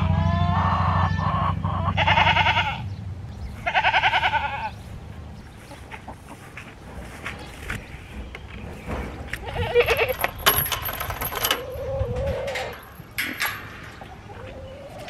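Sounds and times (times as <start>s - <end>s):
goats bleating: 1.8s - 2.9s, 3.6s - 4.8s, 9.4s - 10.2s.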